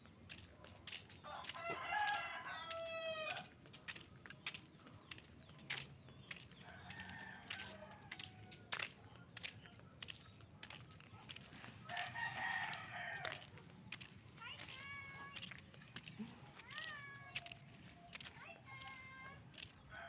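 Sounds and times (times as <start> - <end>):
rooster crowing: 1.3 - 3.4, 11.9 - 13.5.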